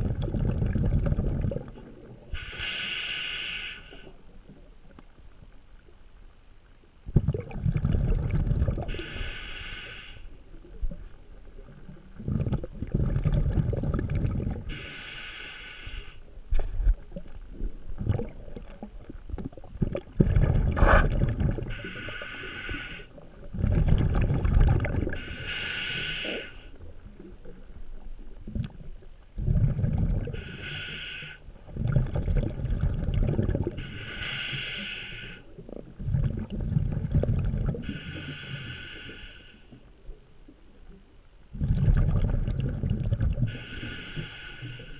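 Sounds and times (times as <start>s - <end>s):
exhaled bubbles rushing: 0.0s - 2.2s, 7.1s - 9.0s, 11.6s - 14.7s, 16.8s - 21.8s, 23.4s - 25.3s, 28.3s - 30.4s, 31.7s - 33.8s, 35.8s - 37.9s, 41.6s - 43.6s
regulator inhale hissing: 2.4s - 4.2s, 8.9s - 10.4s, 14.7s - 16.4s, 21.7s - 23.2s, 25.1s - 26.8s, 30.3s - 31.5s, 33.8s - 35.6s, 37.8s - 39.8s, 43.5s - 44.9s.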